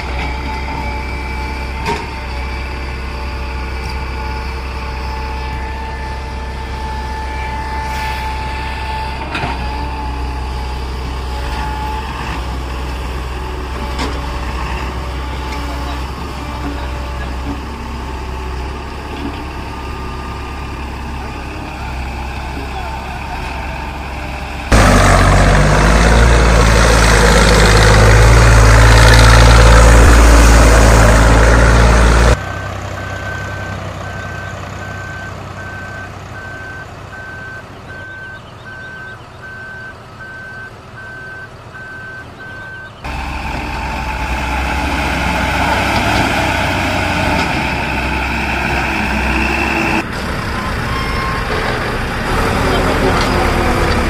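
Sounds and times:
reversing beeper: 0.0 - 12.2, 27.6 - 53.7
truck engine running: 0.0 - 54.0.

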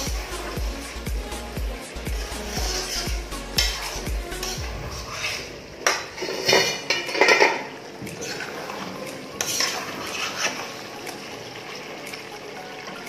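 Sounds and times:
spatula scraping a wok: 2.0 - 7.5, 9.4 - 10.8.

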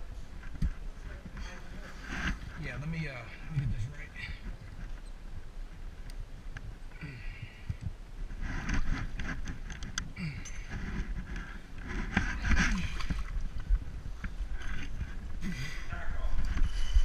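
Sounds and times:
water sloshing and splashing: 11.4 - 15.4.

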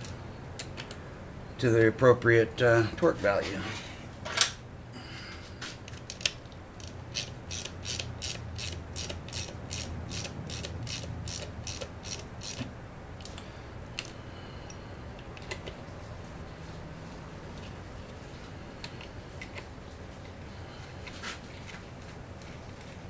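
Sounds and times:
hand ratchet clicking: 6.0 - 12.7.

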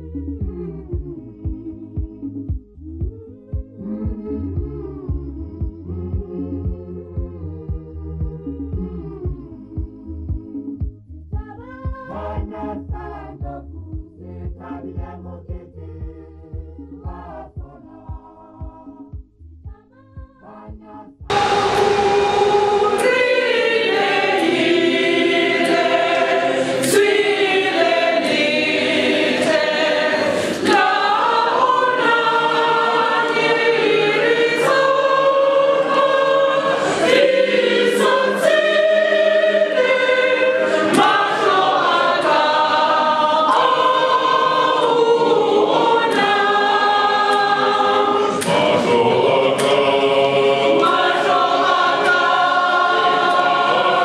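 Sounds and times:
church choir singing a hymn: 12.0 - 15.9, 21.3 - 54.0.

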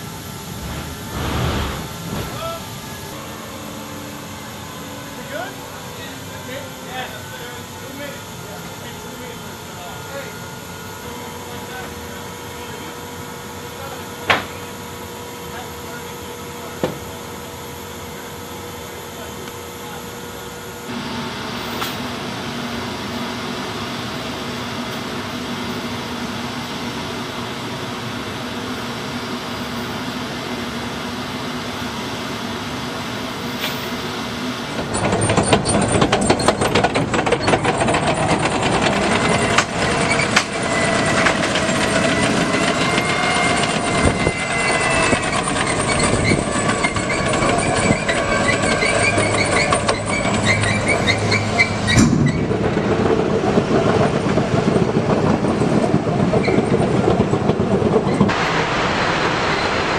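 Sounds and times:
steady mechanical hum: 0.0 - 59.9
tank tracks clattering and squealing: 0.3 - 3.2, 34.7 - 58.3.

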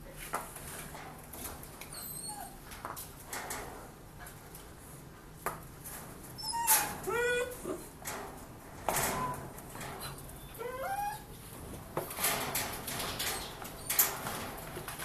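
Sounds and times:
dog whimpering and whining: 1.9 - 2.6, 6.4 - 7.9, 9.1 - 9.4, 10.0 - 11.4.

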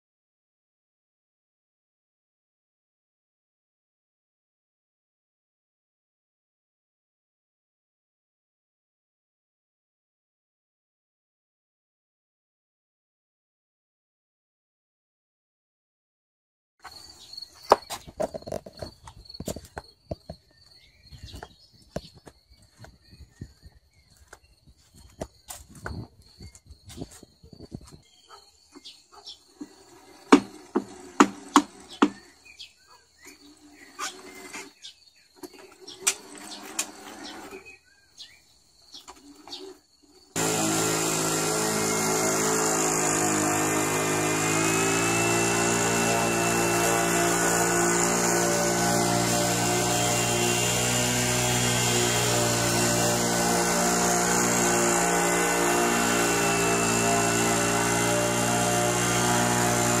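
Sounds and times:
lawn mower engine running: 17.7 - 20.4, 29.6 - 32.3, 33.5 - 37.8, 40.4 - 60.0
electric drive motors whining: 29.5 - 37.8, 40.4 - 60.0.

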